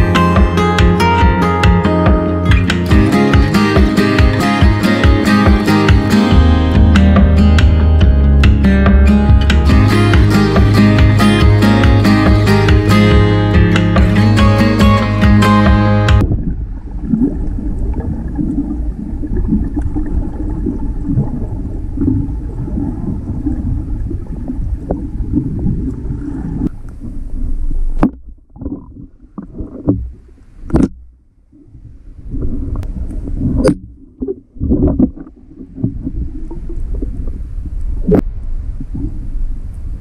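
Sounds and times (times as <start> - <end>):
muffled underwater rumble: 16.1 - 40.0
water gushes: 16.2 - 27.4.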